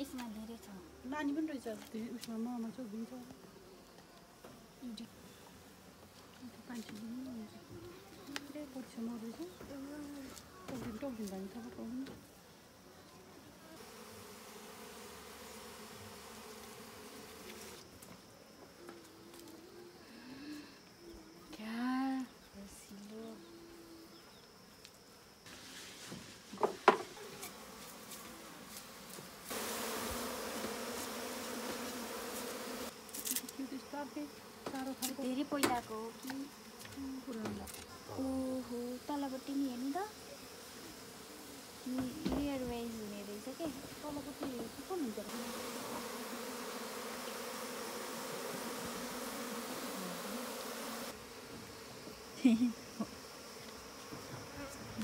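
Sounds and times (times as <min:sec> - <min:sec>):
bees buzzing: 0:13.7 - 0:17.9, 0:27.2 - 0:55.0.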